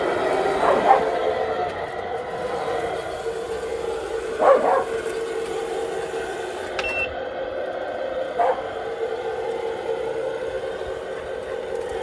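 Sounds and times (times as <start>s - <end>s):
toy truck electric motor whining: 0.0s - 12.0s
short high beep: 6.8s - 7.1s.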